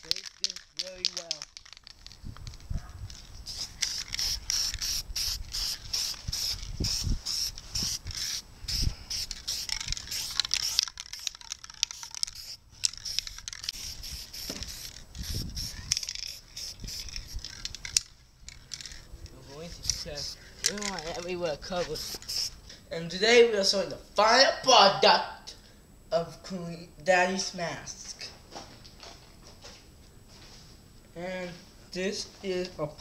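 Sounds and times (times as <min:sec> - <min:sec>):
aerosol spray can spurts: 0:00.0 - 0:19.0, 0:19.8 - 0:22.6.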